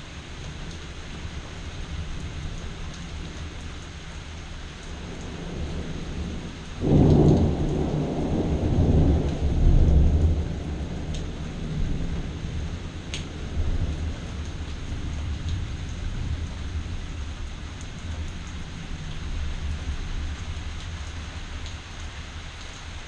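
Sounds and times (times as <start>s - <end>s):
steady rain: 0.0s - 23.0s
thunder rumbling: 4.9s - 21.3s.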